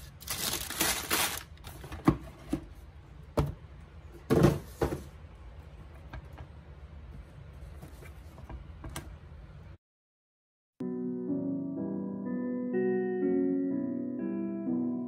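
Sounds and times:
tissue paper rustling: 0.0 - 1.8.

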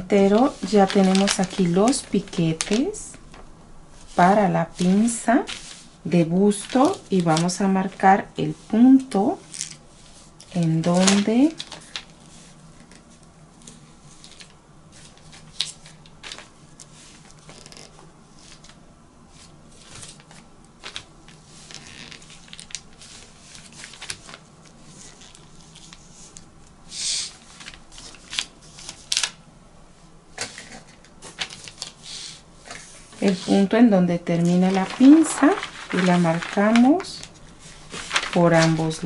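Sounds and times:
fabric and paper rustling: 0.0 - 26.5, 27.3 - 29.4, 30.4 - 32.0, 32.6 - 39.0
brushing rustle: 3.9 - 6.0, 9.8 - 14.3, 34.4 - 39.0.

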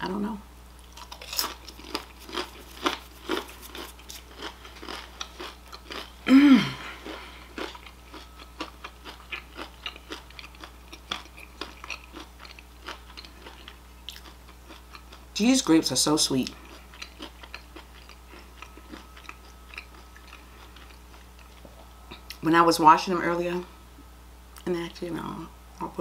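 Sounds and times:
crunchy chewing: 0.8 - 15.3, 16.4 - 22.4.

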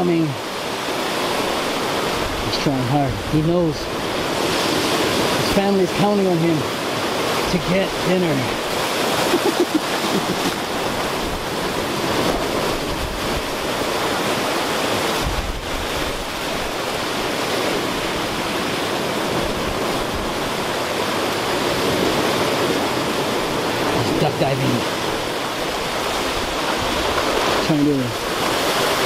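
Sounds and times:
surf breaking over rocks: 0.0 - 29.0.

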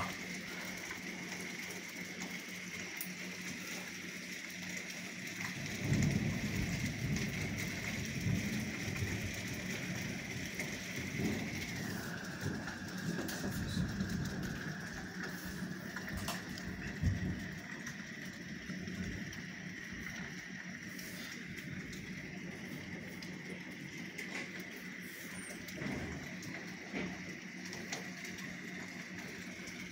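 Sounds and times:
rain on slate roofs: 0.0 - 29.9
rolling thunder rumble: 5.4 - 24.2.

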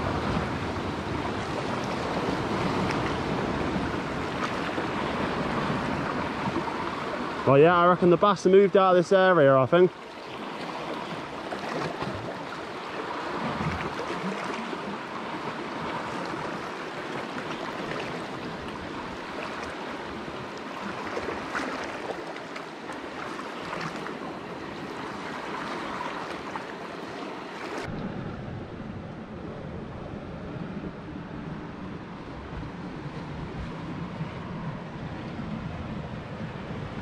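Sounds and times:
sea water lapping against rocks: 9.2 - 27.9.

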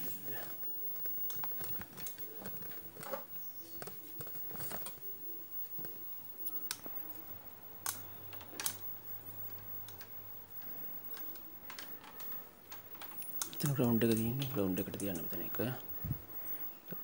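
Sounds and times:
test probes clicking and tapping: 7.8 - 17.0.

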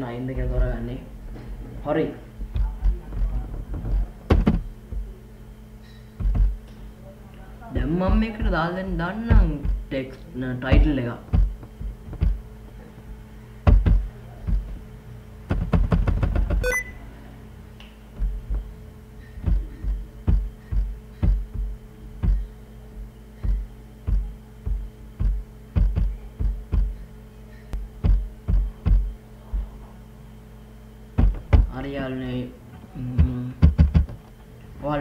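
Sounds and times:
low electrical hum: 0.0 - 35.0
keyboard keys clacking: 15.5 - 17.0.

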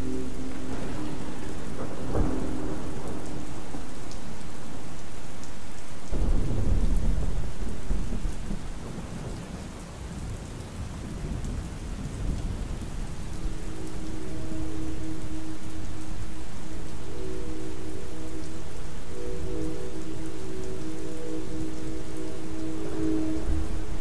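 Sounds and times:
synthesizer train horn chord: 0.0 - 4.5, 13.4 - 24.0
low rumble of thunder: 0.0 - 24.0
steady rain: 0.0 - 24.0.

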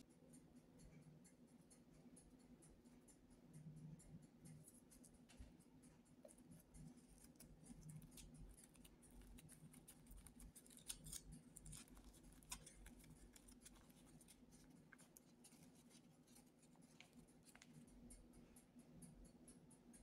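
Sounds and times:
paper cupcake liner crinkling: 7.1 - 17.8.

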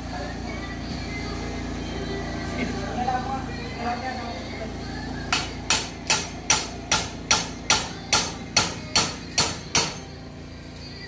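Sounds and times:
hammer striking concrete block wall: 5.3 - 10.1.

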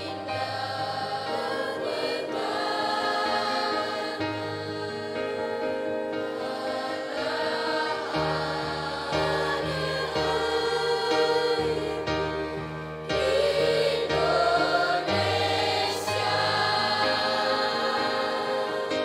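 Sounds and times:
children's choir singing: 0.0 - 19.0.

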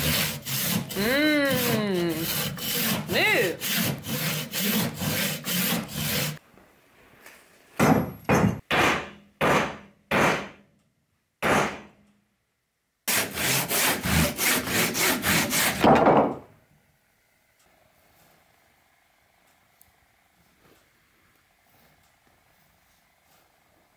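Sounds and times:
handsaw cutting wood: 0.0 - 6.4, 13.1 - 15.9.

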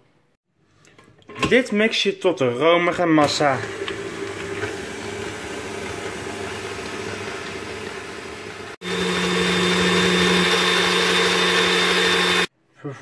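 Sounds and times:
stand mixer whisking: 3.3 - 12.5.

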